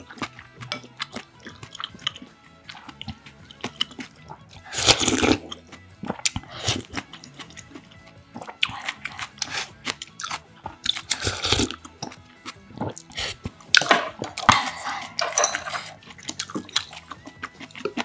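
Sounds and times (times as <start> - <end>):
chewing: 0.0 - 15.2, 15.9 - 18.0
slurping from spoon: 0.2 - 12.2, 12.8 - 13.6.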